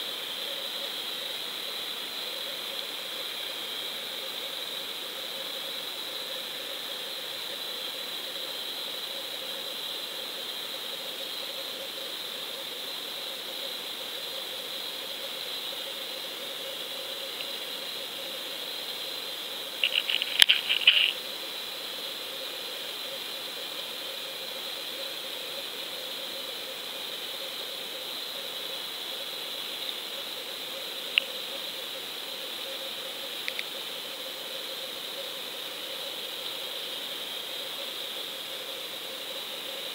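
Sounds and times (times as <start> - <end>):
sharp crackling clicks: 19.8 - 21.2.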